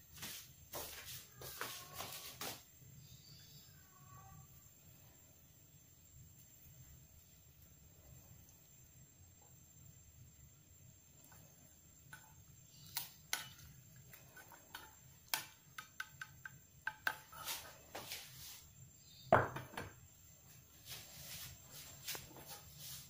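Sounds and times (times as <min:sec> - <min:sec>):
pan set down on stove: 0:19.3 - 0:20.0.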